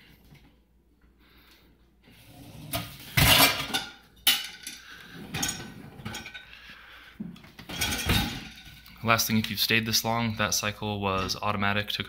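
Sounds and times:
dishes clattering in rack: 2.7 - 6.5, 7.6 - 8.8
dishwasher rack clack: 3.1 - 6.4.

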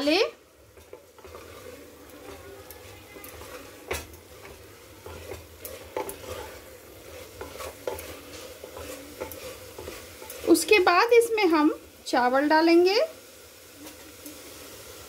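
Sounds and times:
vegetables sizzling: 0.0 - 15.0
wooden spatula knocking on cooker: 0.7 - 10.7.

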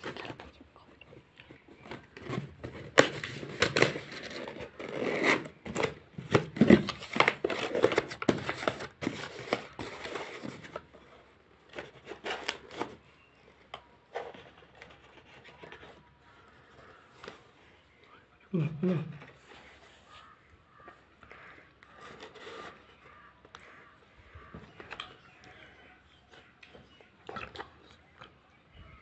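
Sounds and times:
cardboard box being folded: 1.8 - 13.3.

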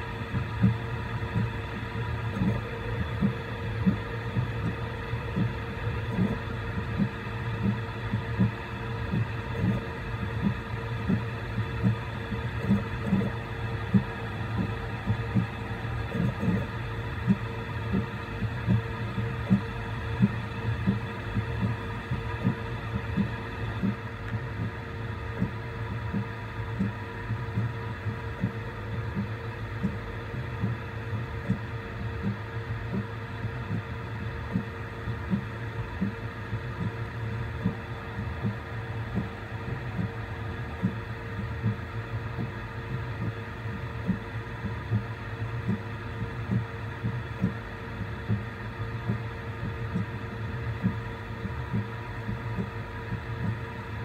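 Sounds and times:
printer fans and motors humming: 0.0 - 54.0.

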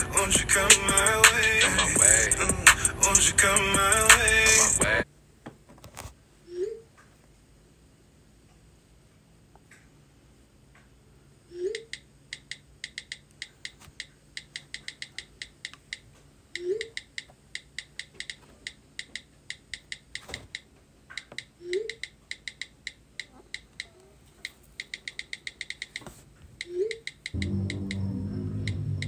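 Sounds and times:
low rising tone: 27.4 - 29.0.

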